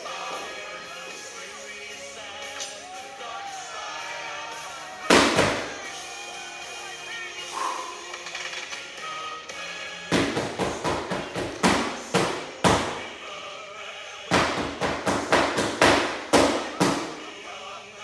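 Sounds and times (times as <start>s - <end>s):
faint music: 0.0s - 18.0s
spatulas drummed in sharp slaps: 10.1s - 13.0s, 14.3s - 17.2s.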